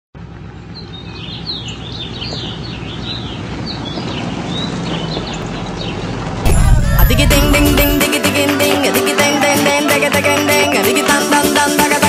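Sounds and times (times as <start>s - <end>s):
birds chirping: 0.7s - 8.0s.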